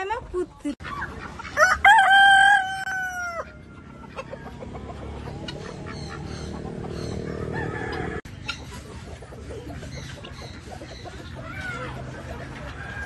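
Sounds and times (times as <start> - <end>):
rooster crowing: 1.6 - 3.8, 7.3 - 8.2.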